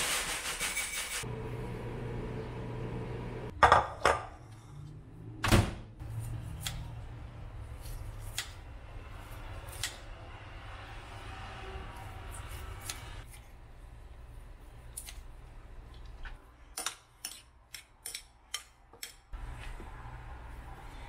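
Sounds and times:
microwave oven humming: 1.3s - 3.5s.

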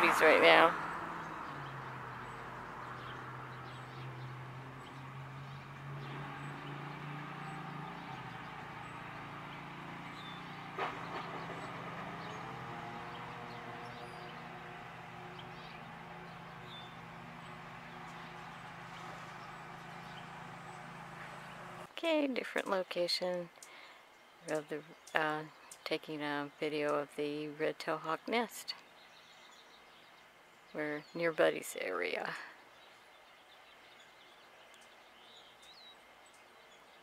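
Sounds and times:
motor vehicle engine running: 0.0s - 21.9s.

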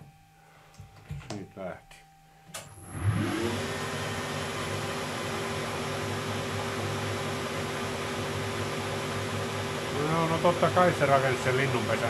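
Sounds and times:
lathe humming and whining: 2.7s - 12.0s.

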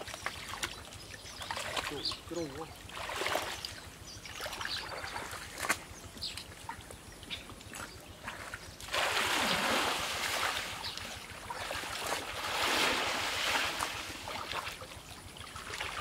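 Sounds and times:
muddy water splashing: 0.0s - 16.0s.

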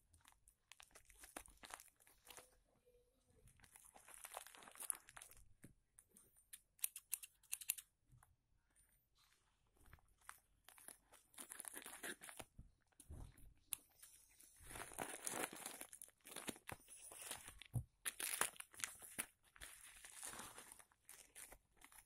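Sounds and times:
plastic mailer bag crinkling: 3.6s - 5.4s, 14.6s - 22.0s.

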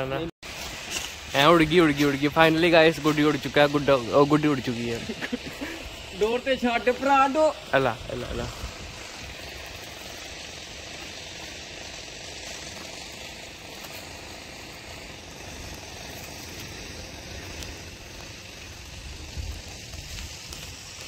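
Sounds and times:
wind on microphone: 7.8s - 9.4s, 18.6s - 20.9s.

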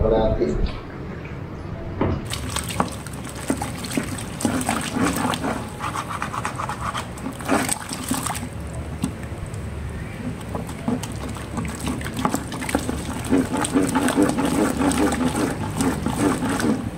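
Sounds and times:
thick gel sloshing and churning: 2.2s - 16.9s.

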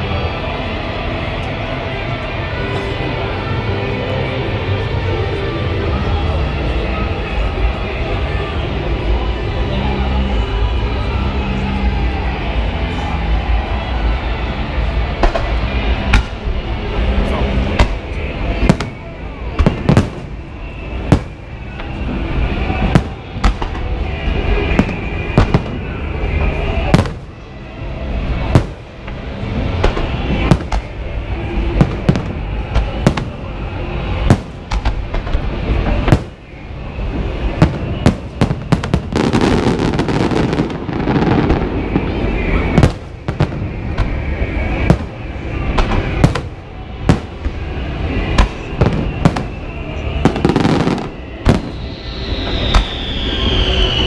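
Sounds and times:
fireworks rumble: 0.0s - 54.0s
fireworks crackling: 12.5s - 54.0s
fireworks bangs: 15.1s - 27.5s, 28.1s - 54.0s.

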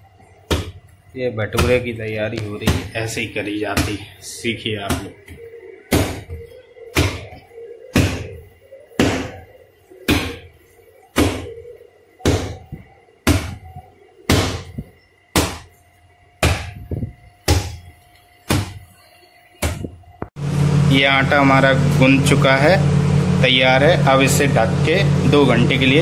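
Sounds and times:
dough pounded on hard surface: 5.9s - 6.3s, 13.2s - 13.6s, 14.3s - 15.7s, 16.4s - 16.8s, 18.5s - 18.8s.

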